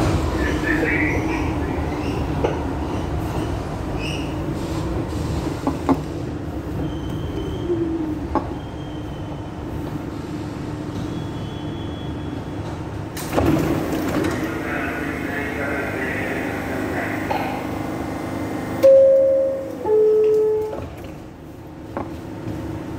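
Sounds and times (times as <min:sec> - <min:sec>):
subway car rumbling on rails: 0:00.0 - 0:22.9
faint wheel squeal: 0:08.5 - 0:09.5, 0:11.0 - 0:12.6.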